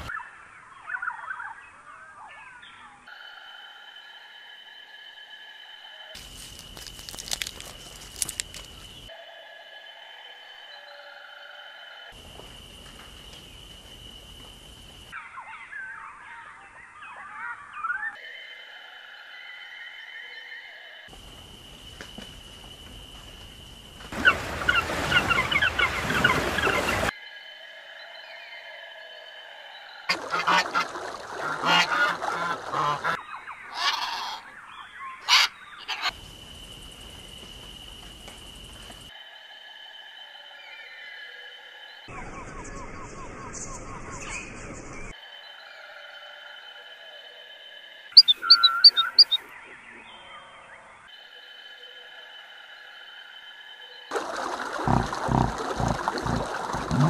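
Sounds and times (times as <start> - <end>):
birds chirping: 24.2 - 27.1, 31.6 - 36.2, 48.2 - 50.6, 54.9 - 57.0
swans honking: 24.2 - 27.1, 30.1 - 34.4, 35.2 - 36.2, 48.2 - 49.4, 54.4 - 57.0
macaw squawking: 32.8 - 34.4, 35.2 - 36.1, 48.2 - 49.4.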